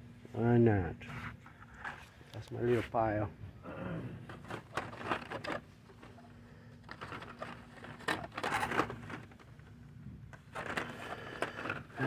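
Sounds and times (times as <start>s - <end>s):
blister packs rustling and clicking: 4.2s - 12.0s.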